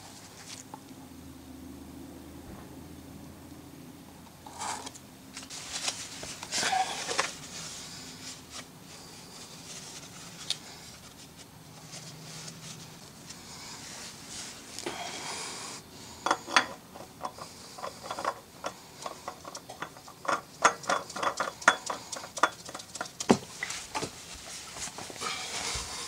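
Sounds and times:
faint steady hum: 0.0s - 26.0s
hands handling oil filter: 16.2s - 26.0s.

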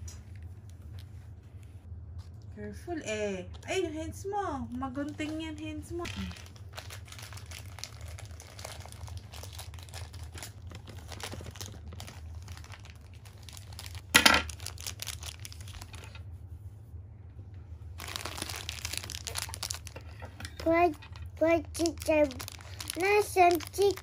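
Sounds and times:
plastic wrapper crinkling: 4.9s - 16.2s, 18.0s - 24.0s.

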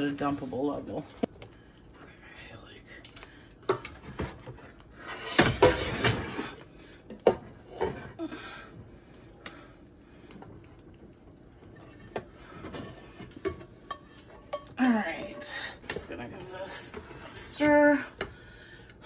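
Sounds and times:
pot and utensils knocking: 12.1s - 16.1s.

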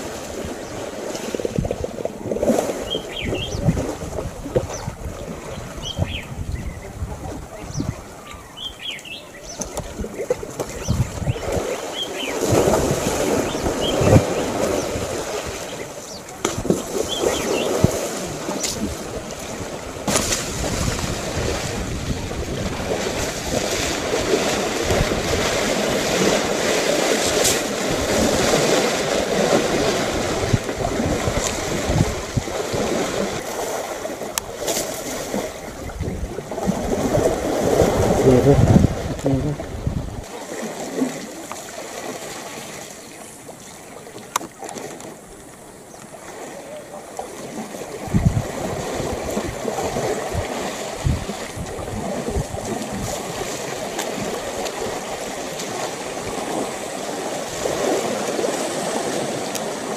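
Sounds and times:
wind buffeting microphone: 0.0s - 40.3s, 47.5s - 59.9s
elephants splashing water: 0.0s - 59.9s
bird chirps: 2.9s - 3.6s, 5.8s - 6.8s, 7.6s - 9.8s.

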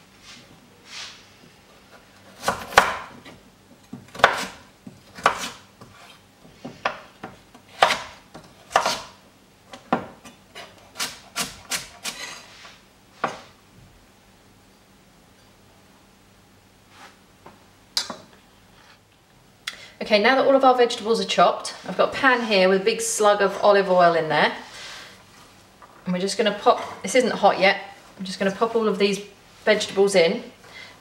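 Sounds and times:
knife chopping on wooden board: 2.4s - 3.3s, 3.9s - 6.0s, 6.8s - 9.1s.

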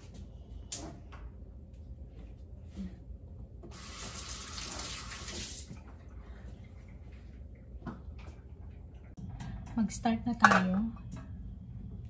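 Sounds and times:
faucet running into sink: 3.7s - 5.7s.

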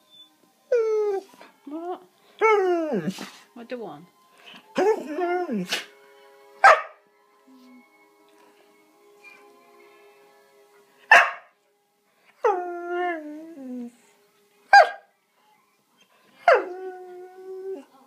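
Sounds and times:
dog barking: 6.6s - 7.0s, 11.1s - 11.5s, 14.8s - 15.0s.

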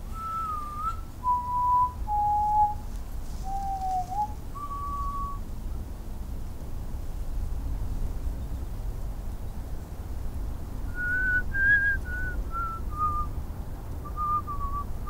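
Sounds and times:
low steady rumble: 0.0s - 15.0s
person whistling a short tune: 0.2s - 2.8s, 3.5s - 5.4s, 11.0s - 13.3s.

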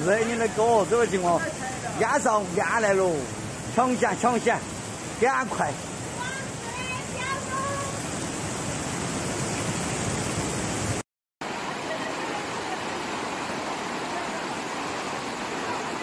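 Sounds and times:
floodwater rushing: 0.0s - 16.0s.

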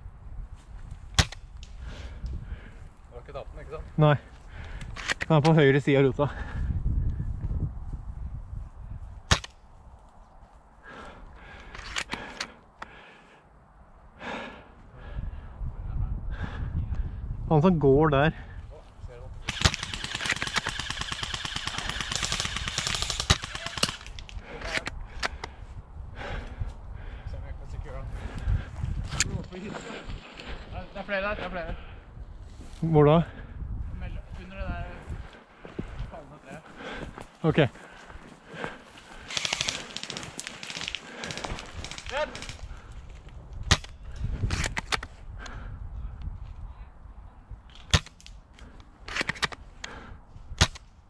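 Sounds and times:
airsoft gun firing: 19.4s - 24.2s, 39.3s - 42.5s.

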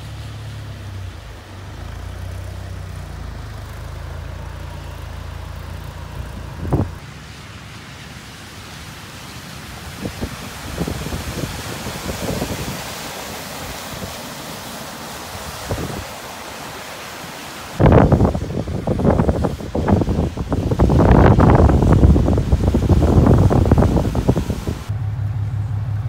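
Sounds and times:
tyres splashing through water: 0.0s - 26.0s
wind rumble on microphone: 4.2s - 7.0s, 9.8s - 14.2s, 15.3s - 16.2s, 17.8s - 26.0s.

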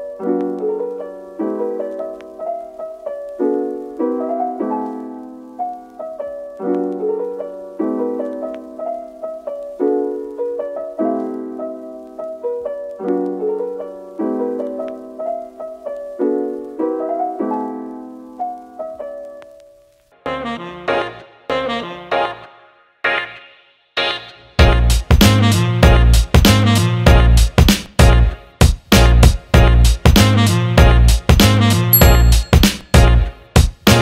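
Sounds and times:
gentle piano music: 0.0s - 22.5s, 31.3s - 33.6s.

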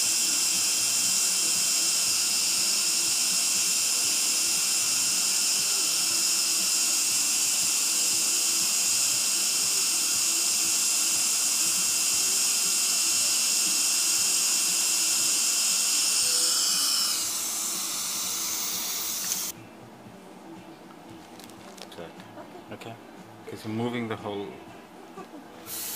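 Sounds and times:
dental equipment hissing and whining: 0.0s - 19.6s, 25.6s - 25.9s.

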